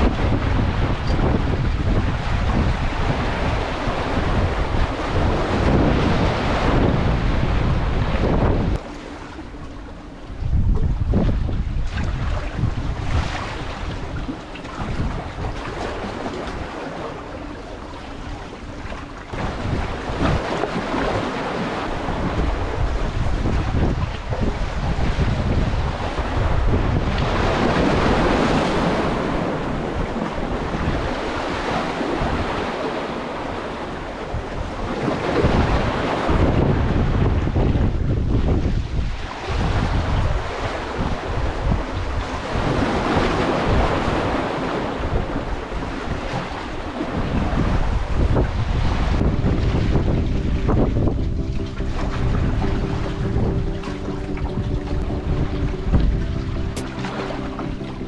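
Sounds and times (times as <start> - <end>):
wind buffeting microphone: 0.0 - 58.0
sea water washing against rocks: 18.7 - 37.6
waves breaking against a wall: 18.9 - 33.7.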